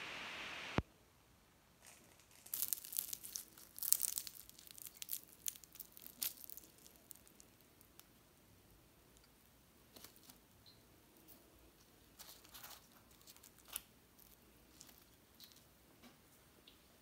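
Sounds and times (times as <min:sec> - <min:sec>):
steady hiss: 0:00.0 - 0:00.9
pastry crackling as torn: 0:01.8 - 0:08.1, 0:12.2 - 0:15.7.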